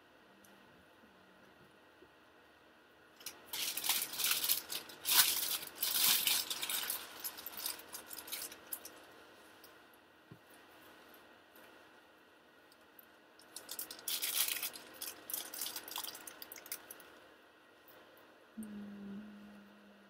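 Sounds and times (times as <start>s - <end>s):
plastic packaging crinkling: 3.2s - 9.1s, 13.4s - 17.1s.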